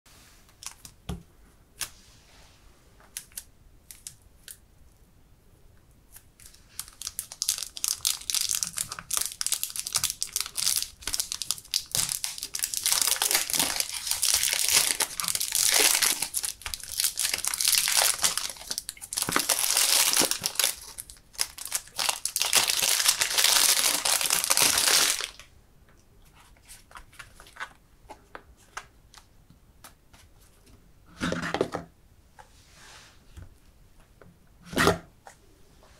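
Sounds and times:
plastic wrap crinkling and tearing: 0:06.4 - 0:25.5.

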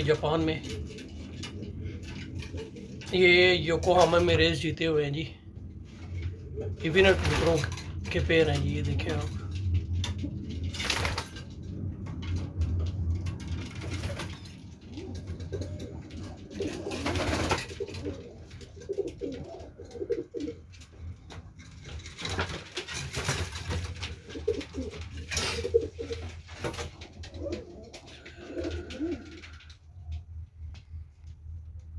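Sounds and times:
pigeons cooing: 0:00.0 - 0:03.3, 0:05.8 - 0:07.6, 0:13.6 - 0:21.2, 0:22.7 - 0:30.2
steady low hum: 0:00.0 - 0:22.3.

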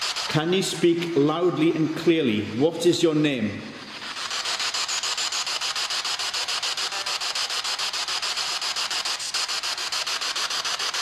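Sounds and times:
pulsing radio static: 0:03.8 - 0:10.8.

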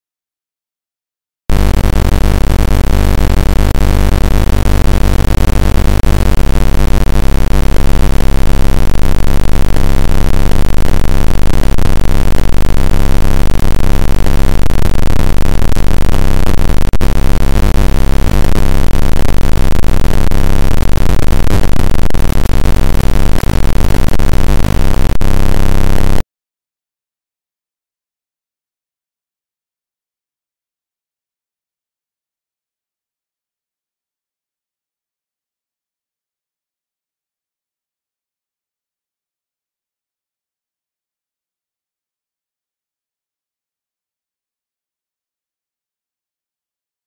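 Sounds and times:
harsh static noise with low hum: 0:01.5 - 0:26.2.

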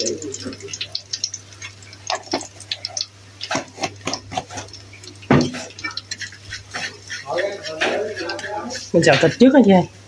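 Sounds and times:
knock on wok: 0:05.3 - 0:05.6.

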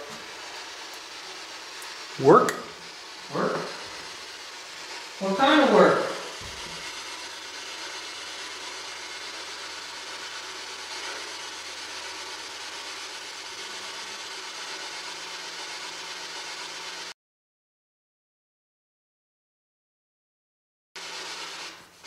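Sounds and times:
radio static hiss: 0:02.0 - 0:12.2.

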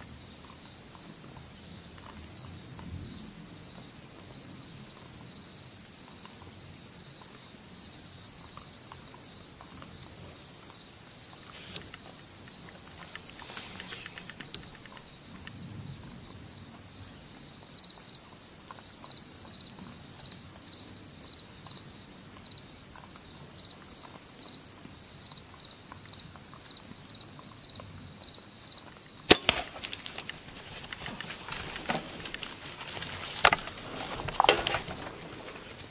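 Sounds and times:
insects trilling: 0:00.0 - 0:35.9
rustling in dry leaves: 0:12.8 - 0:15.1, 0:29.4 - 0:35.9
sharp crack of bow shot: 0:29.3 - 0:30.2.

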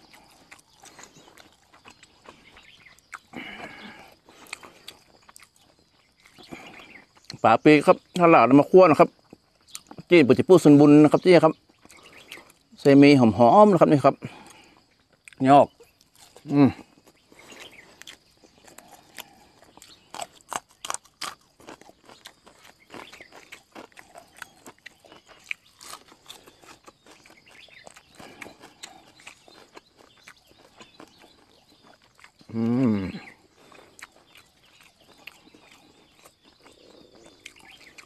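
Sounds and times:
crunchy vegetable chewing: 0:00.0 - 0:38.0
short low vocal sound: 0:32.5 - 0:33.4.

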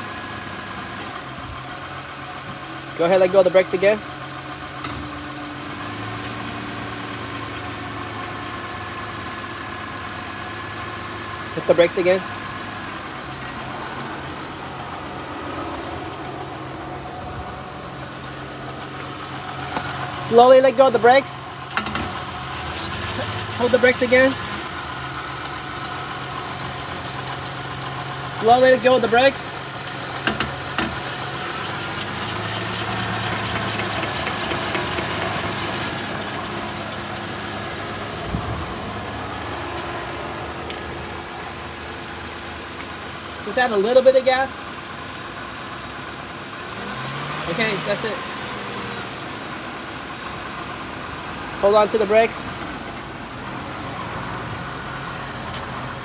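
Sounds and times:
car engine idling: 0:00.0 - 0:56.0
brake rotor fast ticking: 0:18.2 - 0:38.4.

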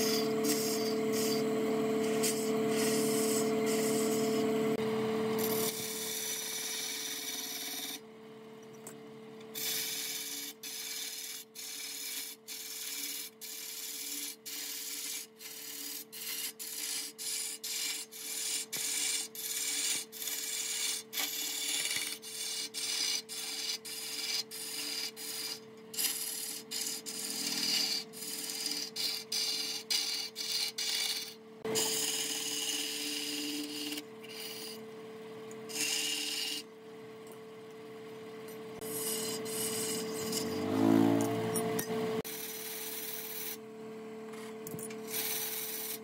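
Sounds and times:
steady hum: 0:00.0 - 0:10.5
wood being scraped by hand: 0:09.6 - 0:34.8.

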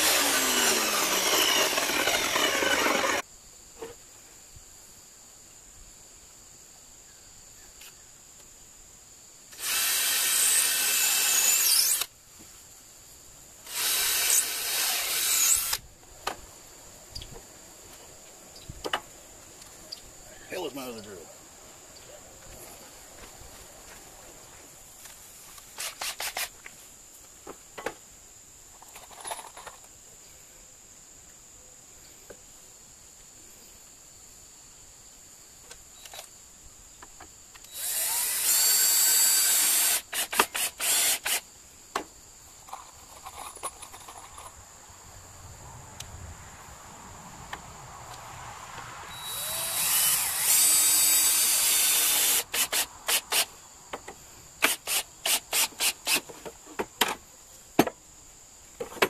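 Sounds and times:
cordless drill whining into wood: 0:00.0 - 0:03.2, 0:09.5 - 0:12.1, 0:13.6 - 0:15.8, 0:25.8 - 0:26.5, 0:37.7 - 0:41.4, 0:49.1 - 0:53.5, 0:54.6 - 0:56.2.

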